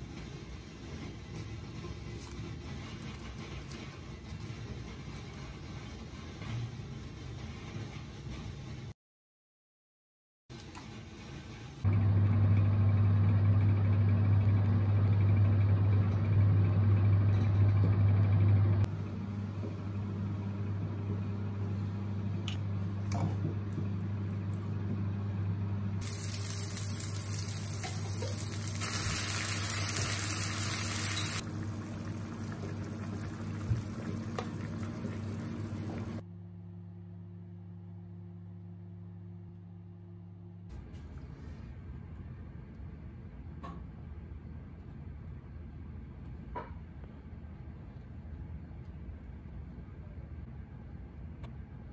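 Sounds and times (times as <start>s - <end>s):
steady low hum: 11.9s - 51.9s
sauce hissing in frying pan: 26.0s - 31.4s.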